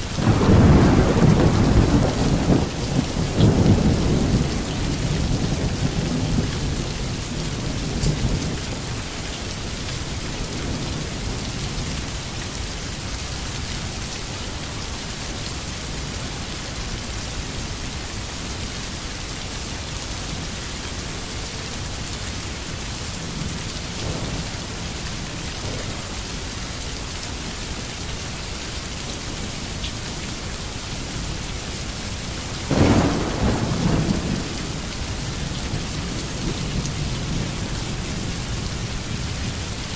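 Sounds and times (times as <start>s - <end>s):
steady rain falling: 0.0s - 39.9s
thunder rumbling: 0.2s - 8.6s, 32.6s - 39.7s.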